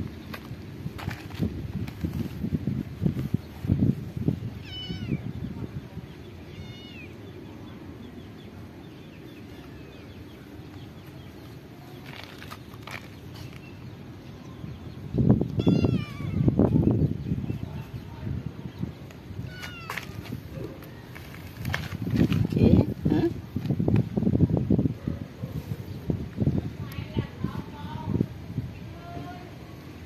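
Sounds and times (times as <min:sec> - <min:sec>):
cat meowing: 0:04.6 - 0:05.3, 0:06.5 - 0:07.2, 0:15.6 - 0:16.5, 0:19.4 - 0:20.2.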